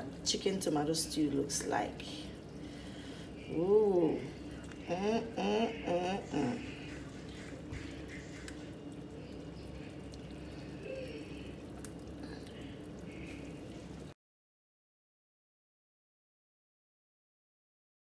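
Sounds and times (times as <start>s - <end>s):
steady low hum: 0.0s - 14.2s.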